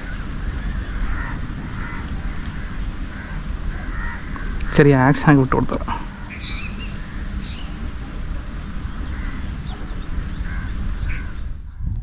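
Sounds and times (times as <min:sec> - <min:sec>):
short bird calls: 0:00.0 - 0:04.8, 0:05.8 - 0:11.6
steady low rumble: 0:00.0 - 0:12.0.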